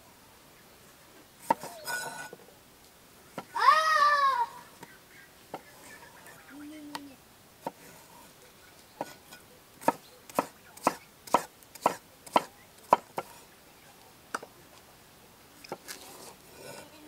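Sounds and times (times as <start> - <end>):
knife chopping on wooden board: 9.8 - 13.4.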